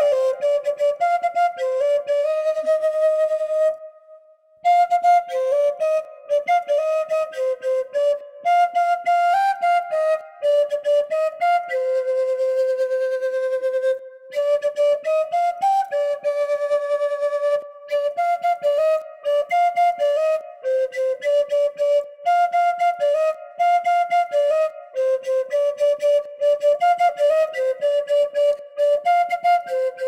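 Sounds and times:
bamboo flute melody: 0.0s - 30.0s.

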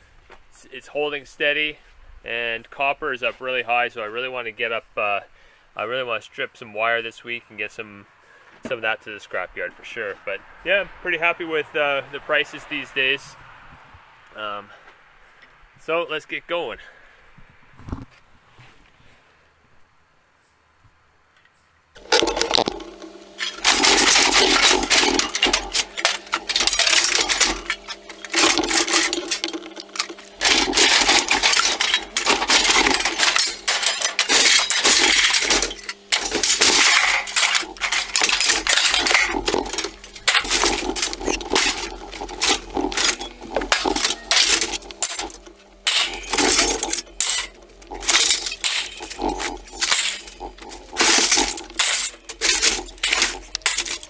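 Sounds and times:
scrap metal crashing onto pile: 22.0s - 54.0s
steady low hum: 22.0s - 54.0s.

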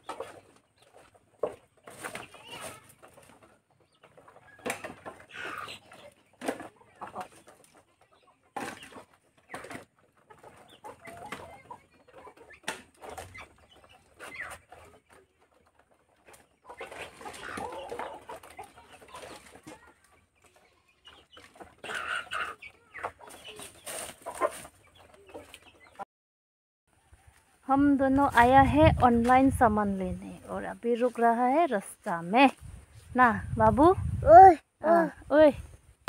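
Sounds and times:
wooden planks clattering: 0.0s - 25.6s
chickens clucking: 0.0s - 26.0s, 26.9s - 36.0s.

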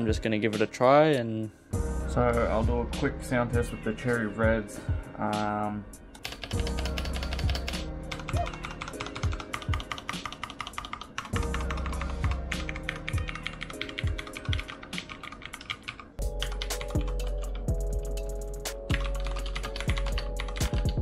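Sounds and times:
background music with bass beat: 1.8s - 5.8s, 6.5s - 10.2s, 11.4s - 13.4s, 16.2s - 21.0s
mechanical keyboard typing: 6.2s - 17.7s, 18.8s - 21.0s.

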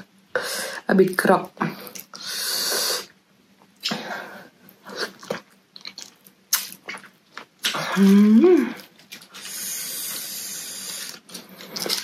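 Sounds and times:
person biting and chewing: 4.9s - 8.2s, 8.8s - 12.0s.

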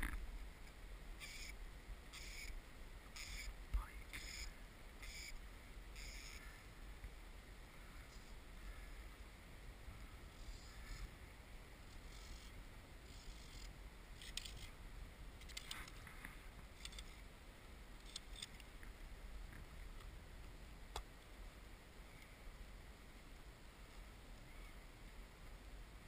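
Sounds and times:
faint low rumble: 0.0s - 26.0s
clicks and scratches of fishing line: 11.9s - 14.7s, 15.4s - 17.2s.

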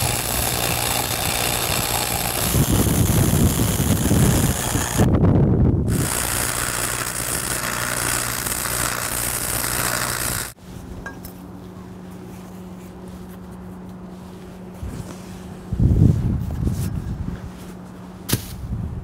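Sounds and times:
welding arc crackling hiss: 0.0s - 5.1s, 5.9s - 10.6s.

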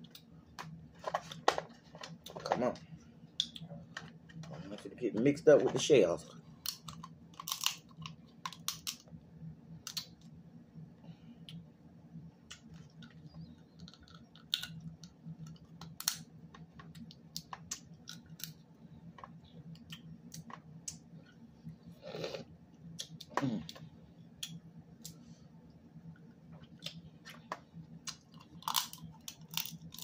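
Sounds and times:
steady low hum: 0.0s - 30.0s
crab shells cracking: 6.5s - 9.1s, 13.8s - 18.6s, 28.1s - 30.0s.

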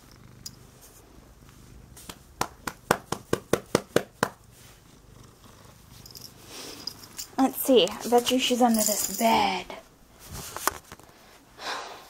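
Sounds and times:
cat purring: 0.0s - 2.4s, 4.3s - 8.5s
hand slaps: 2.0s - 4.4s.

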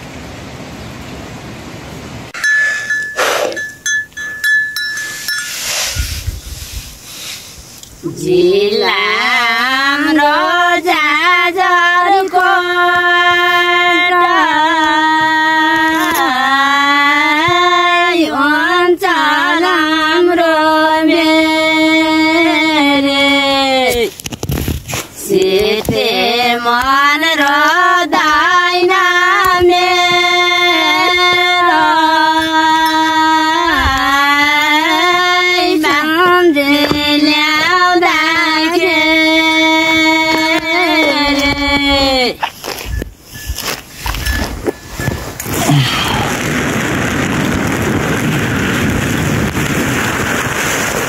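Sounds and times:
high voice singing slow melody: 8.0s - 24.1s, 25.3s - 42.4s.

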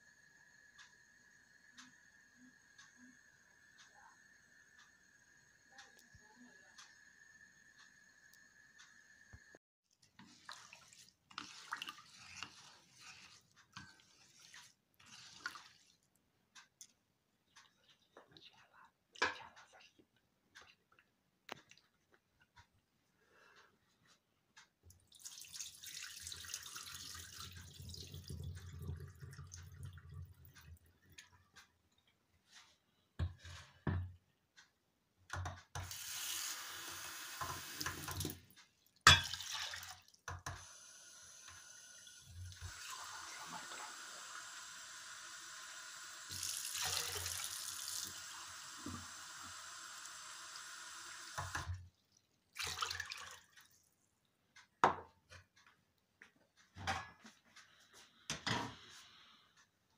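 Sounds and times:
water poured into a metal pot: 10.2s - 16.0s, 25.1s - 30.8s, 39.1s - 40.2s, 46.3s - 48.3s, 51.4s - 53.6s
water poured into a steel sink: 25.1s - 30.8s, 39.1s - 40.1s, 46.3s - 48.3s, 52.5s - 53.5s
tap water running into a mug: 25.1s - 31.1s, 35.8s - 38.4s, 39.1s - 40.7s, 41.4s - 51.8s, 52.5s - 53.7s.

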